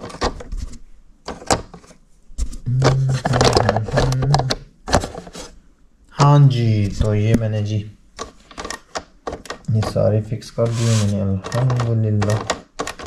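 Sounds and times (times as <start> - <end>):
plastic trays clicking and knocking: 0.0 - 5.5, 8.2 - 10.1, 11.4 - 13.0
man humming: 2.6 - 4.7.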